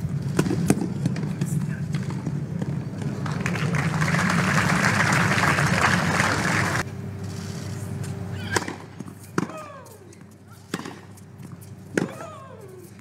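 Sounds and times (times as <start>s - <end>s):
faint steady hum: 0.0s - 13.0s
spectators applauding: 3.1s - 6.8s.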